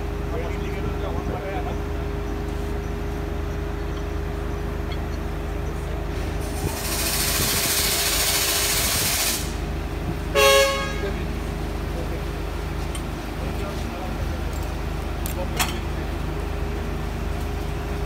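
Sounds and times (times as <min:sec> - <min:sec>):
heavy engine running: 0:00.0 - 0:18.0
loud hiss: 0:06.2 - 0:09.8
loud horn blast: 0:10.3 - 0:11.3.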